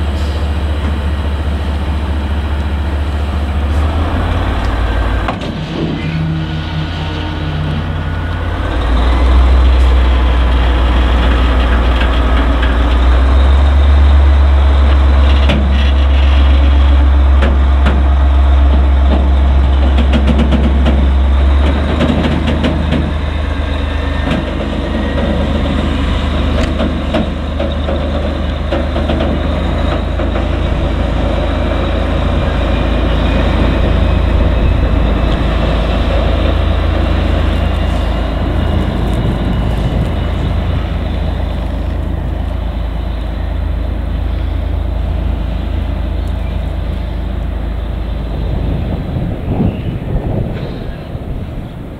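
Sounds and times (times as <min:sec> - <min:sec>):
diesel locomotive engine rumble: 0:00.0 - 0:51.9.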